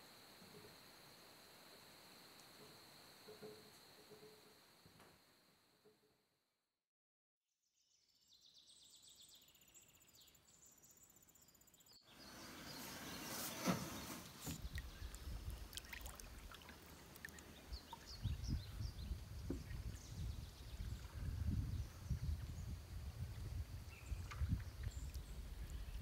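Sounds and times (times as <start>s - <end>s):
faint high chirping: 8.0s - 26.0s
canoe knocking and scraping: 12.2s - 15.1s, 19.4s - 19.9s
small bird chirps: 17.0s - 22.8s.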